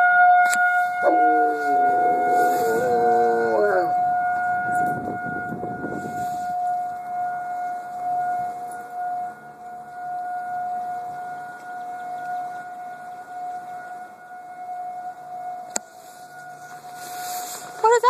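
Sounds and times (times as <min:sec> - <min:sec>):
siren steady tone: 0:00.0 - 0:18.0
rustle of noise: 0:00.6 - 0:03.9, 0:15.9 - 0:18.0.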